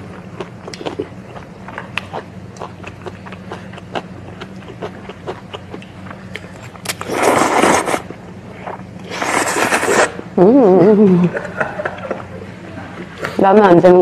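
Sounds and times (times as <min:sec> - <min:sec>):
wet chewing and mouth clicks: 0:00.1 - 0:08.0
noodles slurped: 0:06.9 - 0:10.2.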